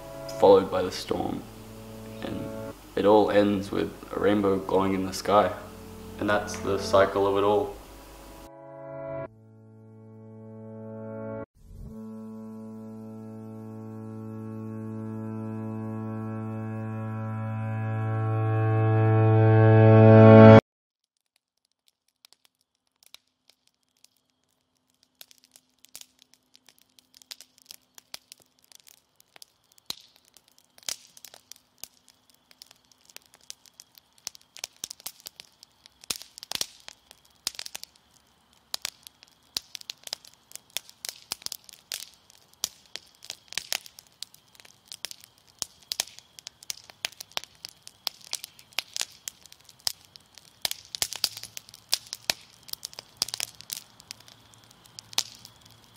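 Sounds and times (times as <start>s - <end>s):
sharp crackling clicks: 21.0s - 55.9s.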